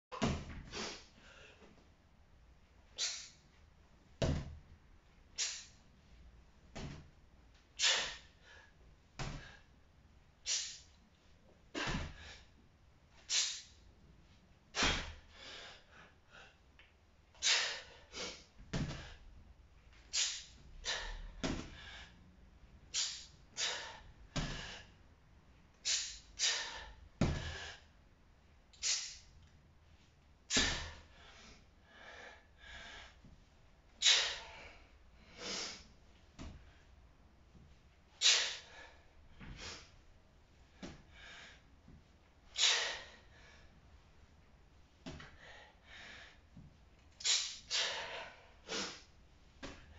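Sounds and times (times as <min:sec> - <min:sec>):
man breathing forcefully: 0:07.8 - 0:09.8, 0:11.7 - 0:12.6, 0:14.7 - 0:16.7, 0:17.4 - 0:19.5, 0:20.1 - 0:28.0, 0:30.5 - 0:37.0, 0:38.2 - 0:40.0, 0:40.6 - 0:43.9, 0:45.1 - 0:49.9.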